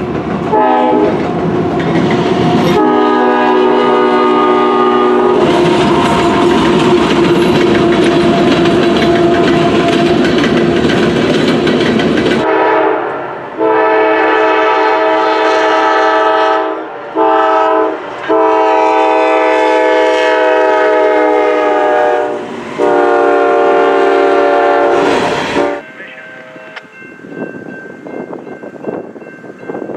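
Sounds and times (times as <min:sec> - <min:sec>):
passing train rumble: 0:00.0 - 0:29.9
locomotive air horn: 0:00.5 - 0:01.2, 0:02.7 - 0:10.3, 0:12.4 - 0:26.8
locomotive horn blasts: 0:00.5 - 0:01.2, 0:02.7 - 0:10.2, 0:12.4 - 0:26.8.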